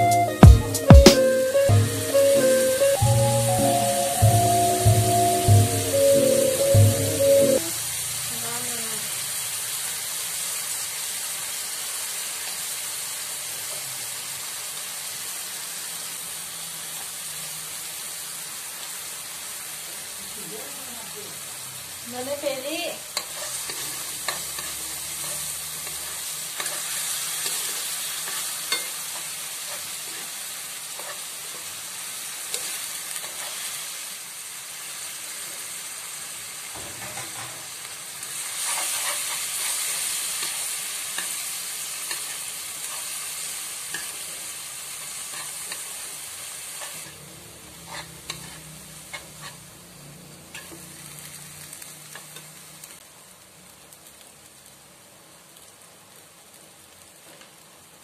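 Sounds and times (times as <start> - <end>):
food sizzling in a frying pan: 0.0 - 58.0
spoon stirring and scraping: 38.6 - 40.6, 47.8 - 49.6.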